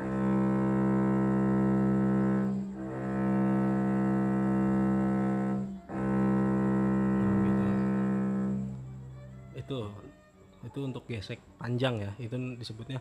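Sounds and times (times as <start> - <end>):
cello sustained note: 0.0 - 10.1.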